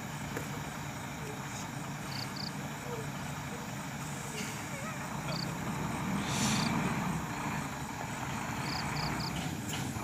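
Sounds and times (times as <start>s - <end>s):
diesel truck engines idling: 0.0s - 10.0s
short air hiss: 6.1s - 6.8s.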